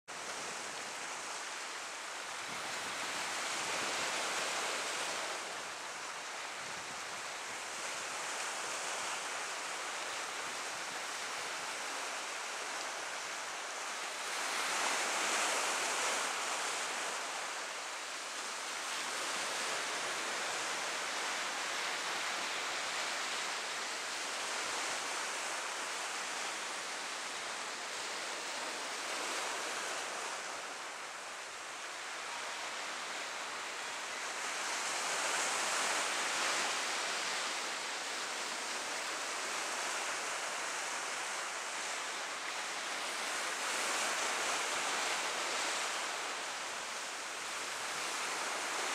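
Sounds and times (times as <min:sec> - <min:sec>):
sea surf breaking over rocks: 0:32.6 - 0:48.9.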